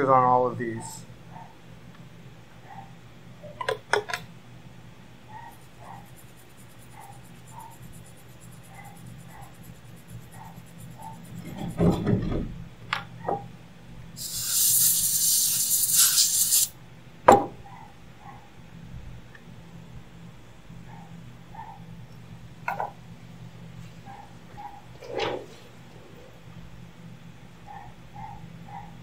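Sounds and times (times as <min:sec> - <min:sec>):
steady hiss: 0:14.2 - 0:16.8.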